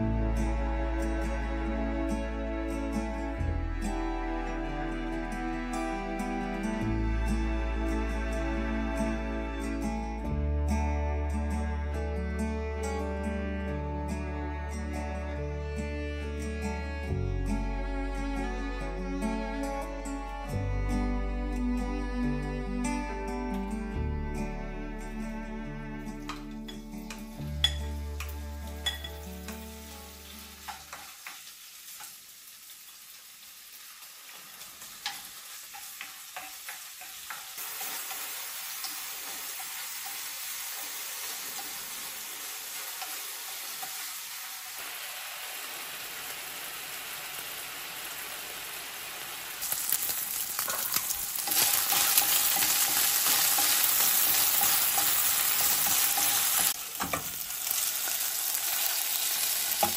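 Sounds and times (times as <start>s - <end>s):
food sizzling in a pan: 26.2s - 59.9s.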